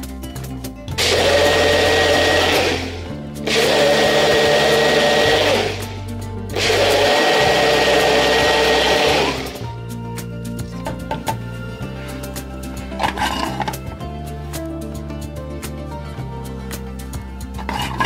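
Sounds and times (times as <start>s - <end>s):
blender whirring: 0.9s - 9.8s.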